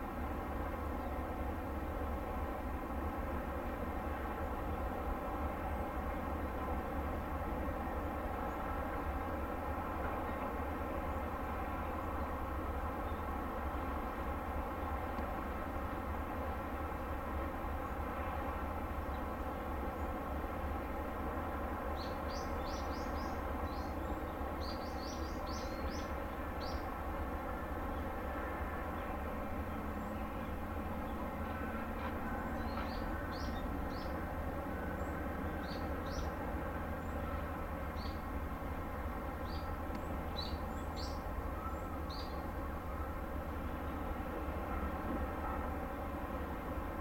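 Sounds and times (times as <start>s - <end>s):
ship machinery hum: 0.0s - 47.0s.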